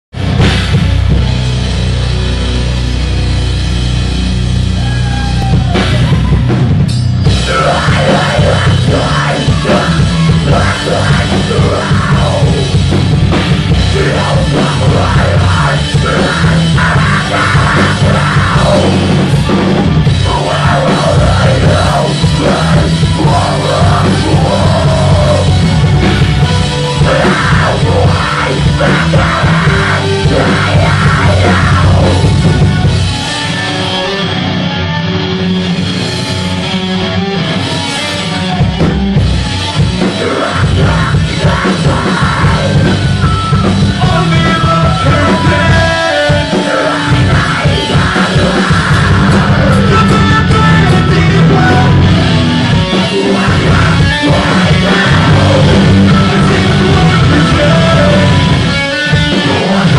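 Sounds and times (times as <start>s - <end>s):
live heavy rock band: 0.1s - 59.9s
person singing into microphone: 7.3s - 12.9s, 13.7s - 32.9s, 40.0s - 59.9s.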